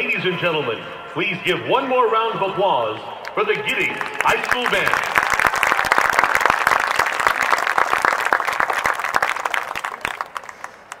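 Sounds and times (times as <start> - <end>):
crowd applauding: 3.8 - 11.0.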